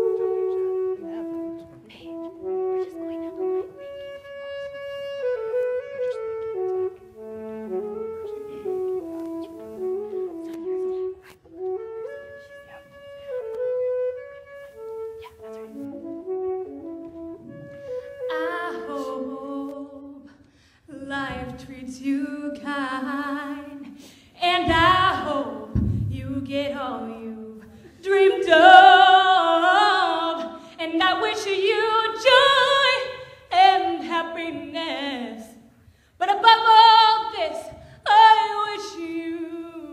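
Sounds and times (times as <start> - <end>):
saxophone slow melody: 0.0 - 20.6
woman singing with vibrato: 18.1 - 35.6, 36.2 - 39.9.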